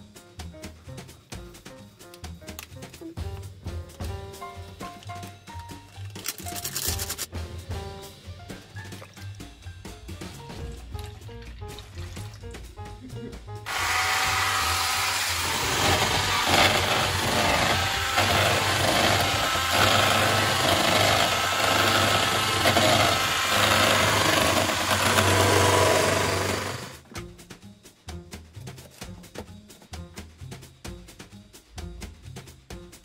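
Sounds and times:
background music with a beat: 0:00.0 - 0:06.0, 0:06.7 - 0:13.7, 0:27.0 - 0:33.0
electric whisk running: 0:13.7 - 0:27.0.

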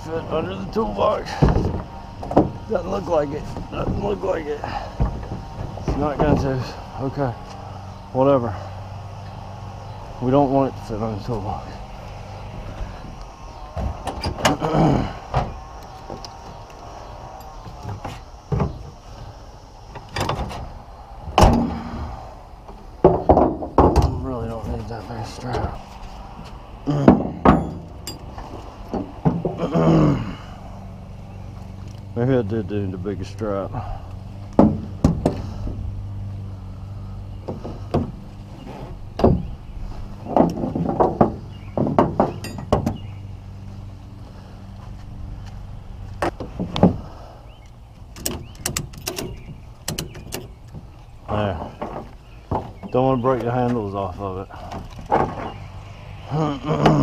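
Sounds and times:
gear scraping: 0:00.0 - 0:57.0
low hum: 0:00.0 - 0:57.0
metallic knocks and clanks: 0:27.0 - 0:29.6, 0:34.4 - 0:35.8, 0:37.4 - 0:43.1, 0:48.1 - 0:53.0.

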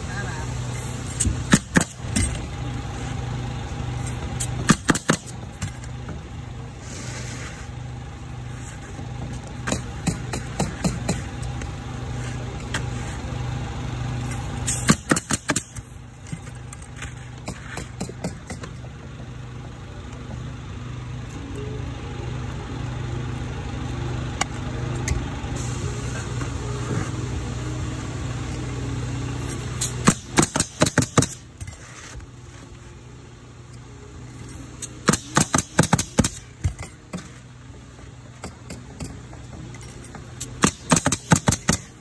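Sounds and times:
steady motor hum: 0:00.0 - 0:42.0
roofing nailer driving nails: 0:14.7 - 0:15.8, 0:30.0 - 0:31.4, 0:35.0 - 0:36.4, 0:40.4 - 0:42.0.

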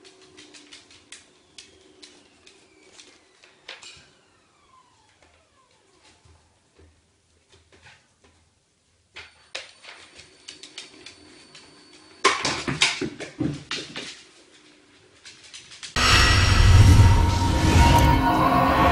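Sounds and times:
ball launcher whine: 0:00.4 - 0:06.6, 0:16.0 - 0:18.9
ball and dog feet on wooden floor: 0:05.2 - 0:16.0
music: 0:16.0 - 0:18.9.

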